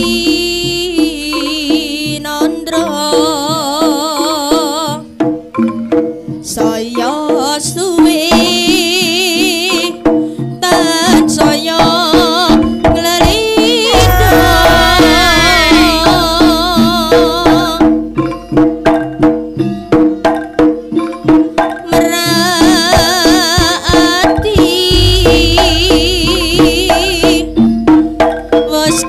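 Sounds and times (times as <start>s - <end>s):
drum strokes: 10.8s - 29.0s
gongs and metallophones: 13.6s - 29.0s
wavering high melody: 13.8s - 18.2s
deep gong boom: 13.9s - 18.1s, 25.0s - 27.8s.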